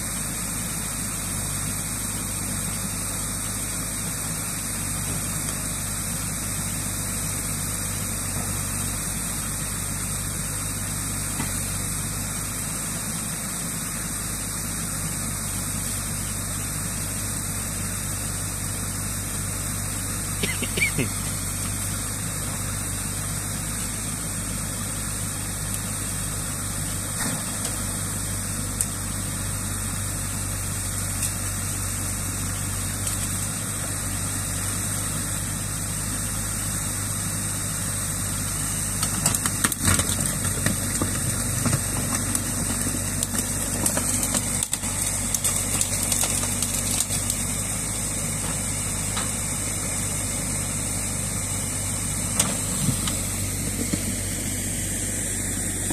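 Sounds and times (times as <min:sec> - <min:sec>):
excavator diesel engine running: 0:00.0 - 0:55.9.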